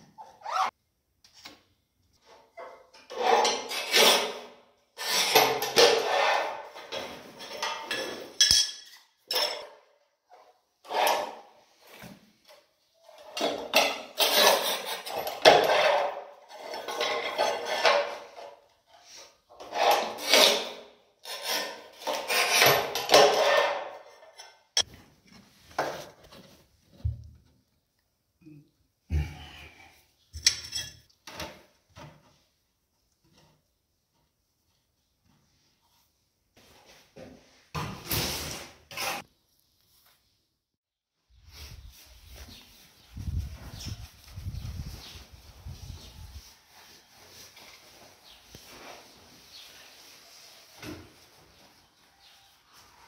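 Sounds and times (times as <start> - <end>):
tiles snapping and clinking: 2.2 - 10.0, 13.2 - 18.9, 19.6 - 24.9, 30.3 - 32.2
tile cutter scoring rasp: 3.1 - 6.7, 19.6 - 23.9, 38.5 - 39.3.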